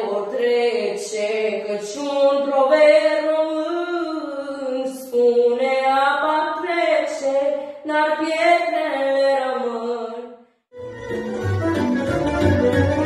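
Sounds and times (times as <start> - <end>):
girl singing folk song: 0.0 - 10.3.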